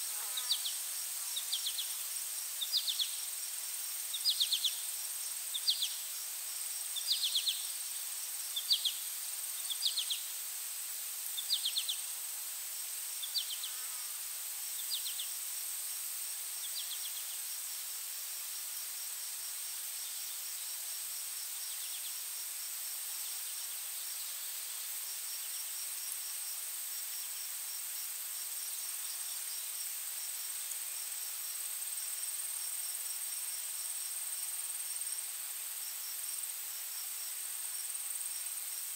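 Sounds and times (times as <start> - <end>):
high-pitched insect buzz: 0.0 - 7.8, 12.8 - 16.0.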